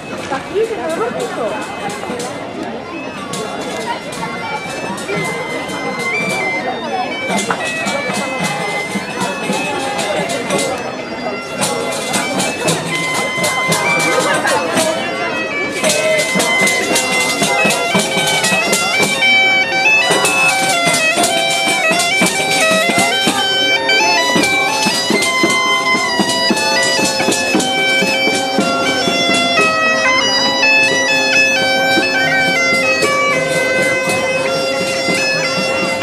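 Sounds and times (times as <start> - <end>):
bagpipe playing folk tune: 0.0 - 36.0
percussive beats: 11.4 - 36.0.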